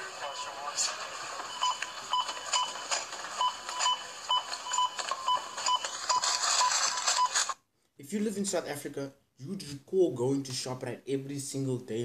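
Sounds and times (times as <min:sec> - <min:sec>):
barcode scanner beeping: 0:01.5 - 0:07.6.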